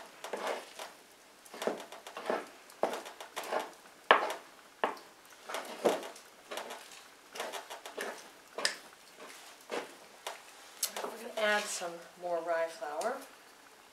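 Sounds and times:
wooden spoon beating dough: 1.5 - 10.0.

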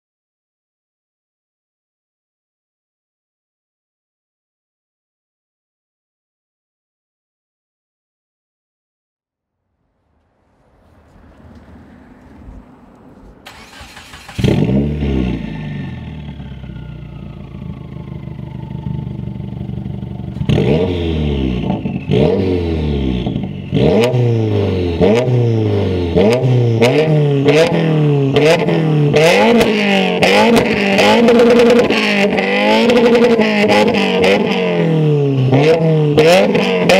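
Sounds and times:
car engine revving: 9.8 - 36.9.

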